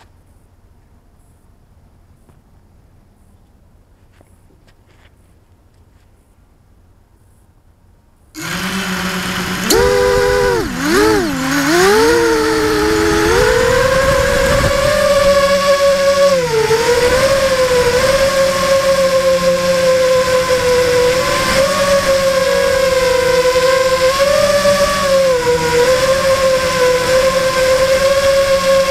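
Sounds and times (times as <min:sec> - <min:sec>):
quadcopter motors whining: 0:08.4 - 0:28.9.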